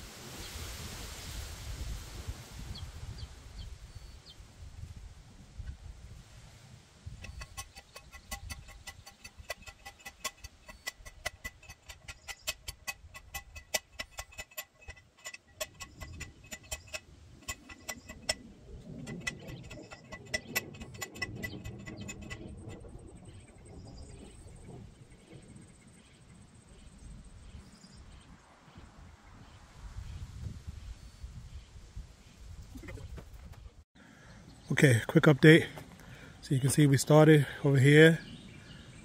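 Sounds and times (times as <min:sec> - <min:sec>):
post driver clanging on metal: 0:07.2 - 0:22.9.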